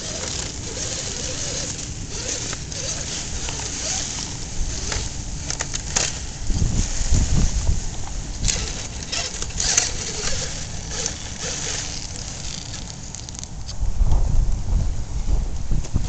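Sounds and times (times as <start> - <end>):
wind buffeting microphone: 0.0 - 12.8, 13.4 - 16.0
toy car tyres clicking on rocks: 0.0 - 13.8.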